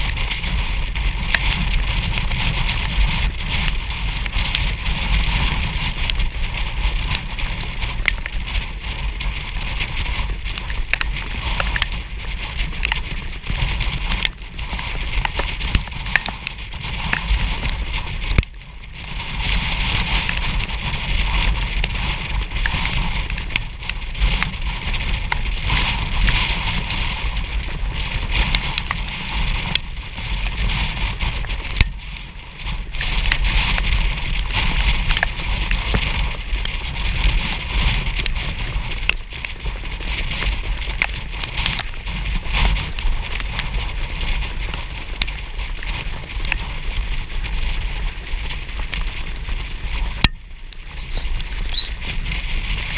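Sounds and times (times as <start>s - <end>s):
wheels crackling over dirt: 0.0s - 52.9s
wind rushing over microphone: 0.0s - 52.9s.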